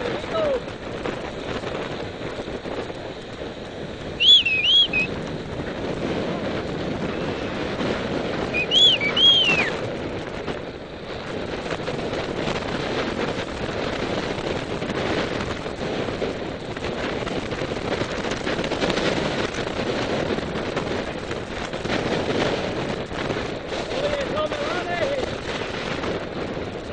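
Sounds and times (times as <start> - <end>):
wind buffeting microphone: 0.0 - 26.9
short high chirps: 4.2 - 5.1, 8.6 - 9.7.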